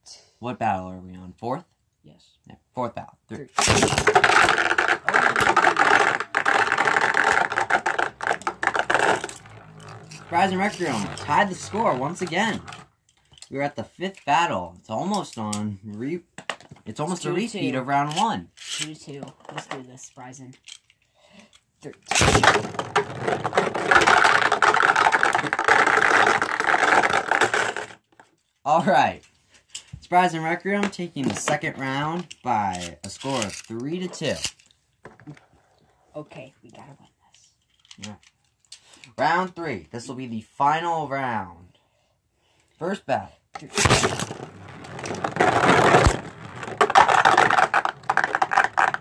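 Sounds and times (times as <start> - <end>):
spinning tops whirring and clashing: 3.6 - 12.8.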